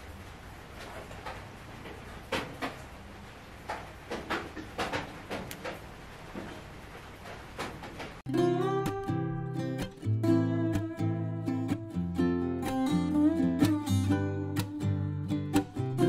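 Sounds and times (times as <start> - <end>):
acoustic guitar music: 8.3 - 16.0.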